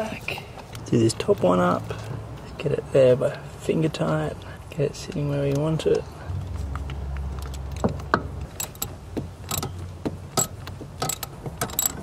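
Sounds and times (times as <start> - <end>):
low steady hum: 6.0 - 12.0.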